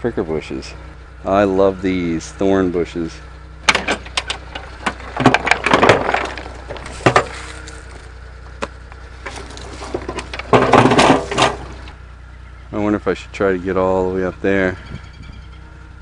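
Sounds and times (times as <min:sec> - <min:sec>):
twigs crackling and snapping: 0:04.0 - 0:10.5
footsteps on dry leaves and gravel: 0:04.7 - 0:11.9.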